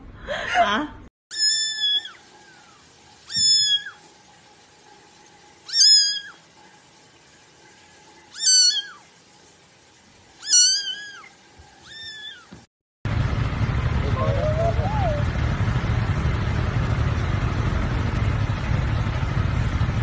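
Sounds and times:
kitten meowing: 1.3 - 2.2, 3.3 - 4.0, 5.7 - 6.3, 8.3 - 9.0, 10.4 - 12.6
road and engine rumble: 13.1 - 20.0.

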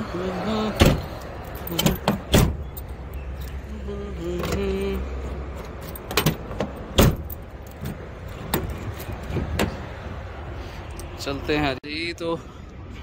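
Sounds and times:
car keys jangling: 0.7 - 9.7.

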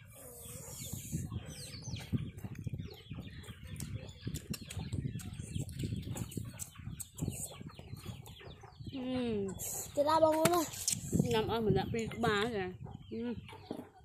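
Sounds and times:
chewing and crunching food: 3.3 - 8.4
mouth clicks: 3.8 - 7.6, 9.6 - 11.2.

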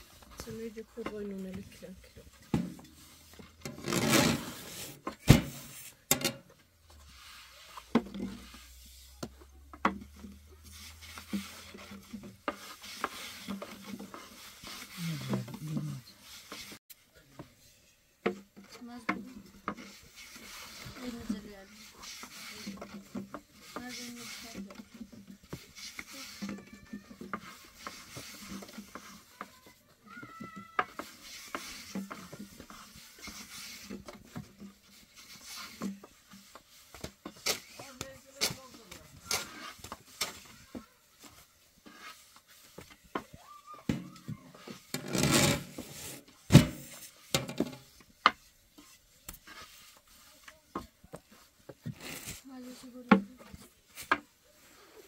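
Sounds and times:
rolling pins rubbing over dough: 10.0 - 17.6, 18.3 - 46.4.

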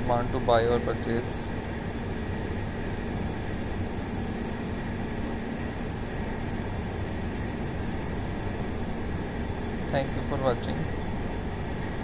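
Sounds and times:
background hum and low rumble: 0.0 - 12.0.

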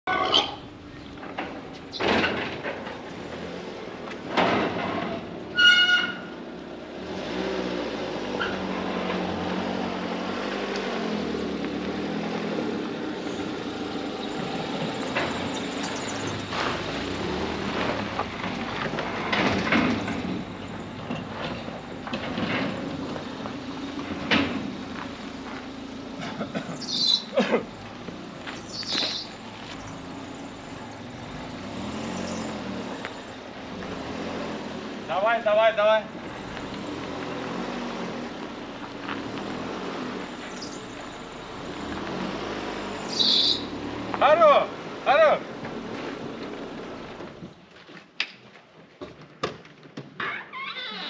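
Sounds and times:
gate squealing: 0.1 - 0.7, 4.8 - 6.4, 43.1 - 43.7, 50.2 - 51.0
car engine running: 9.9 - 47.5.

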